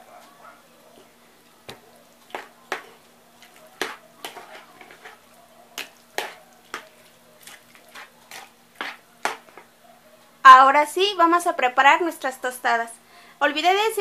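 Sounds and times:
metal spoon scraping plastic bowl: 0:02.3 - 0:05.2, 0:05.8 - 0:06.9, 0:07.7 - 0:09.6.

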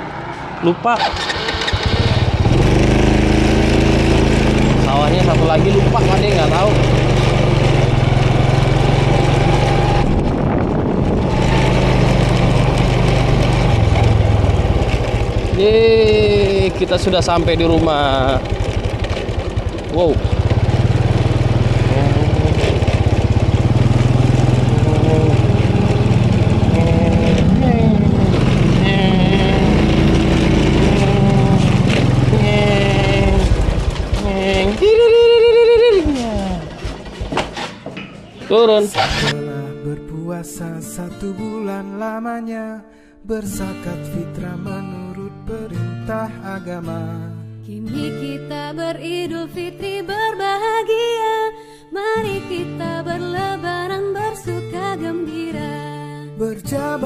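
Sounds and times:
road and wind noise: 0:00.0 - 0:39.4
scooter engine running: 0:01.0 - 0:39.4.

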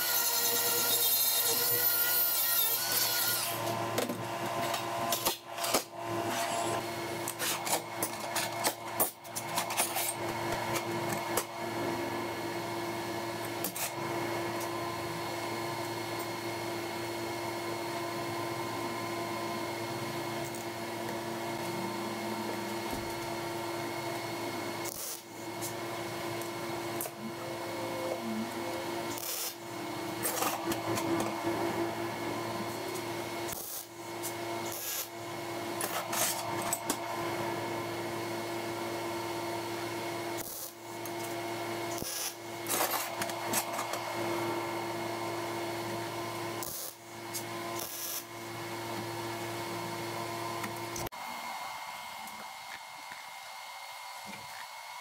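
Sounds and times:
steady hum: 0:16.5 - 0:39.5.

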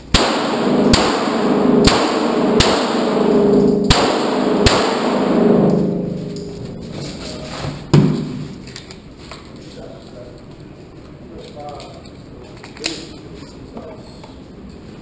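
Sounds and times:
pistol shots echoing: 0:00.0 - 0:06.9.

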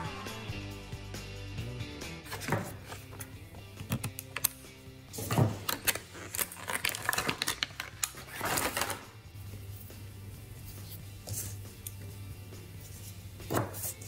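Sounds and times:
soft background music: 0:00.0 - 0:14.0
plastic packaging crinkling: 0:05.6 - 0:09.1.

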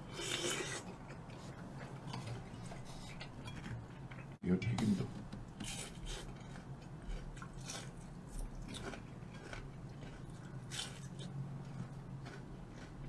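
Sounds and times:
crunching fried food: 0:05.6 - 0:13.0
wet chewing: 0:05.6 - 0:13.0.

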